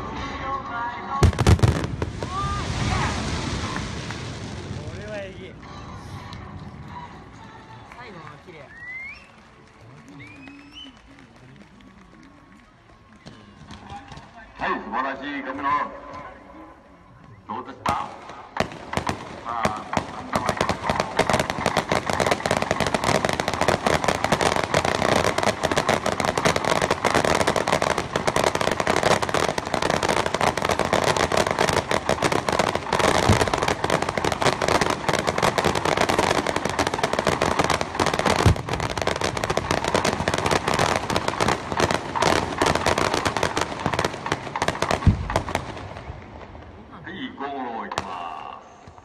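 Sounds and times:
fireworks crackling pops: 1.2s - 14.6s, 17.2s - 46.8s, 47.8s - 49.0s
deep firework thuds: 17.9s - 46.8s.

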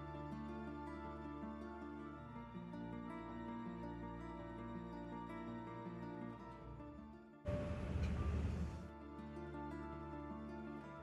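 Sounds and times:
soft instrumental music: 0.0s - 11.0s
loud hiss of noise: 7.5s - 8.9s.

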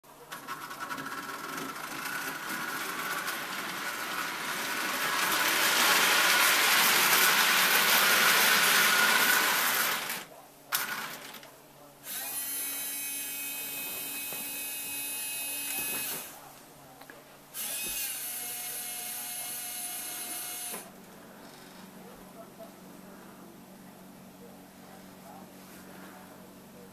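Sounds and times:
toy train rumbling on track: 0.1s - 11.5s
small electric motors whining: 0.5s - 10.3s, 12.0s - 16.4s, 17.6s - 20.9s.

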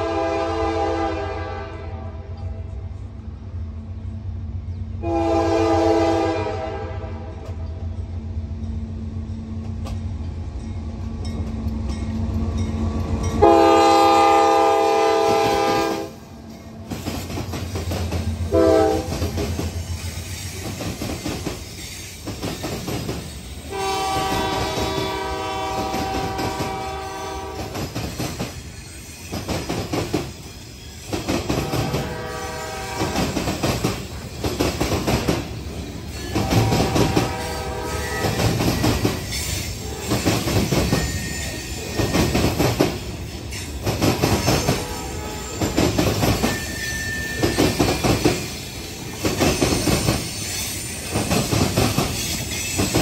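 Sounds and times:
locomotive air horn: 0.0s - 2.4s, 5.0s - 7.4s, 13.4s - 16.3s, 18.5s - 19.3s, 23.6s - 27.8s, 31.5s - 33.4s, 36.2s - 38.6s, 39.5s - 40.4s, 44.5s - 45.8s
train wheels clacking: 8.5s - 53.0s.

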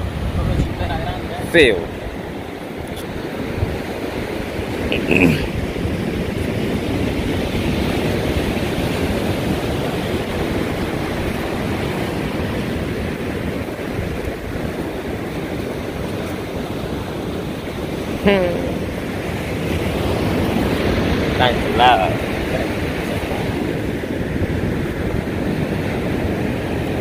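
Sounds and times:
surf breaking on beach: 0.0s - 27.0s
wind: 0.0s - 27.0s.

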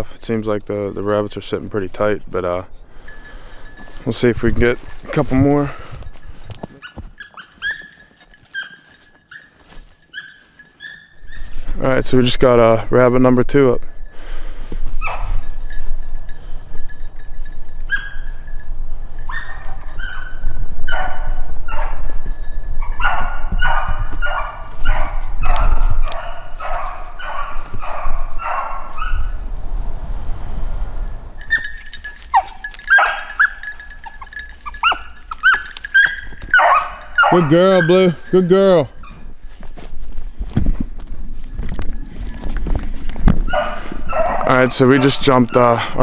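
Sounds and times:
dog baying: 6.8s - 11.5s, 22.8s - 29.3s, 31.5s - 39.3s, 43.5s - 45.8s
dog yelping: 6.8s - 11.5s, 15.0s - 15.3s, 17.9s - 18.3s, 19.3s - 22.1s, 22.8s - 29.3s, 31.4s - 38.3s, 39.0s - 39.3s, 43.5s - 45.8s.

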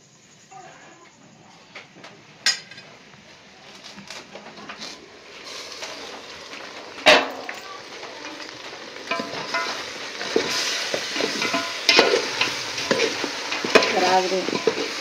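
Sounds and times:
steaming pot hissing: 3.0s - 15.0s
loud metal clank: 7.0s - 7.7s, 11.2s - 14.8s
metal pot lid clinking: 9.1s - 15.0s.

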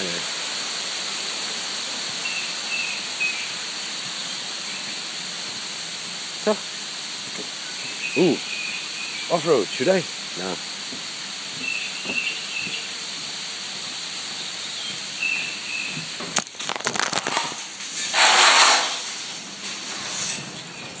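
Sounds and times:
insects hissing: 0.0s - 20.5s
bird chirps: 7.7s - 9.4s, 11.6s - 12.9s, 14.6s - 16.0s
crackling clicks: 16.4s - 17.7s
loud rushing burst of noise: 16.8s - 19.9s.

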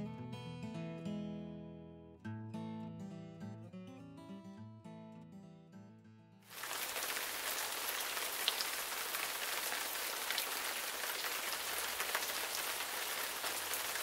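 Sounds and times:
single raindrops ticking: 6.5s - 14.0s
steady rain hiss: 6.5s - 14.0s.

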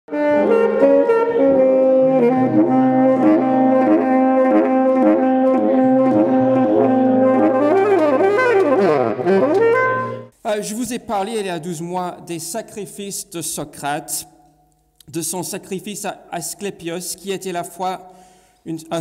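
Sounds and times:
instrumental melody of held notes: 0.1s - 10.4s.

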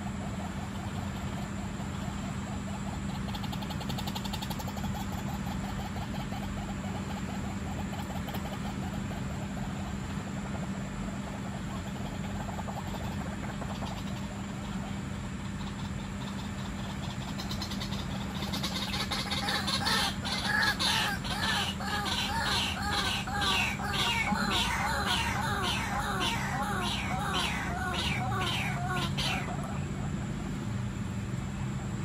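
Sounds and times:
steady low hum: 0.0s - 32.0s
bird calling rapidly: 15.5s - 29.8s.

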